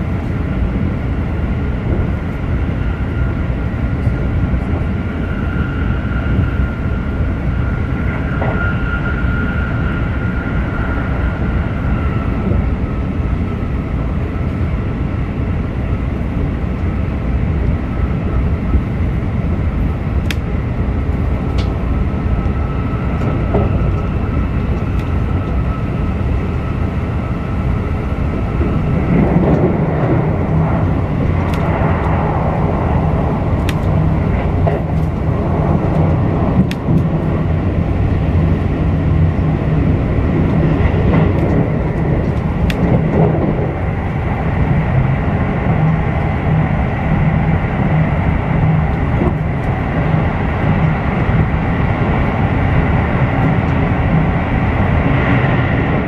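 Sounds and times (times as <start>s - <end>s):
train running rumble and hum: 0.0s - 56.0s
faint whine: 2.0s - 16.0s.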